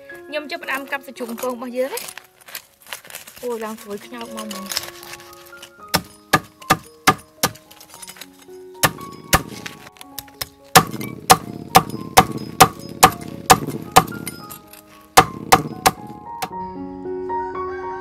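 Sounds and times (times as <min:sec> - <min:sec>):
crispy skin crunching: 0:02.1 - 0:05.9
cleaver chopping on wooden board: 0:05.9 - 0:07.6, 0:08.8 - 0:09.7, 0:10.7 - 0:14.4, 0:15.2 - 0:16.5.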